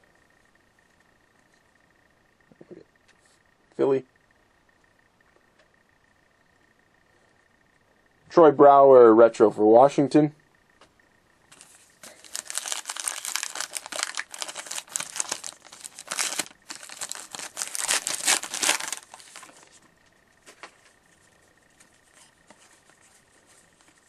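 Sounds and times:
wrapper tearing and crinkling: 0:12.0 - 0:19.5.

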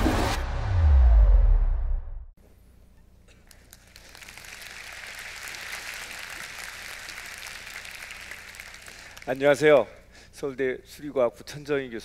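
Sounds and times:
audience applauding: 0:03.5 - 0:09.9.

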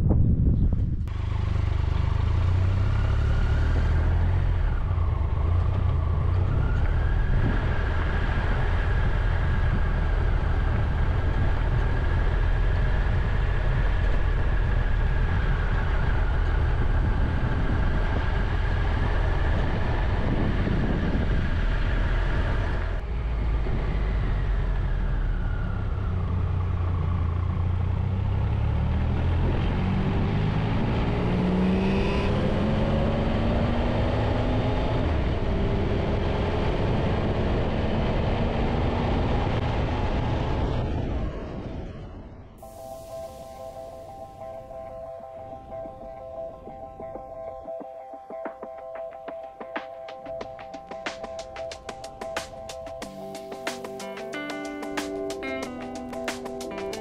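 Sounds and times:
motorcycle engine running: 0:00.1 - 0:31.0.

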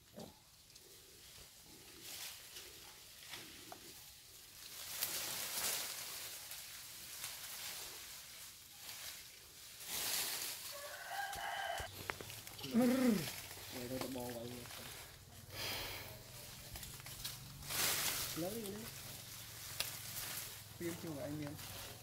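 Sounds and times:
rustling noise: 0:01.3 - 0:15.4, 0:16.2 - 0:22.0
distant rooster crowing: 0:10.6 - 0:12.3.

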